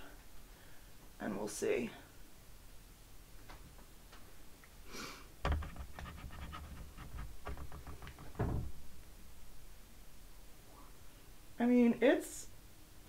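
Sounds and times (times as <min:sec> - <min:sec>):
scratchy rustling: 0:05.5 - 0:08.4.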